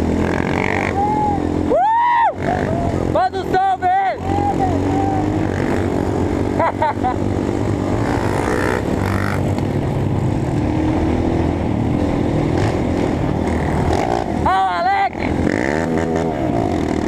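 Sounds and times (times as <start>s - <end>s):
motorbike engine running: 2.3s - 17.0s.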